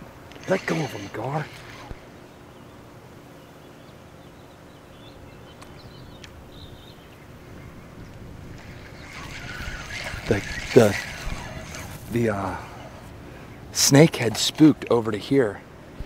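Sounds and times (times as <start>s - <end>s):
wind on the microphone: 5.7s - 13.8s.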